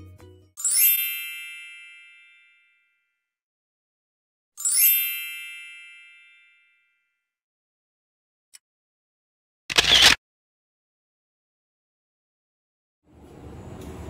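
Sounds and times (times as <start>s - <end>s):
bright chime dings: 0.6s - 3.1s, 4.6s - 7.1s.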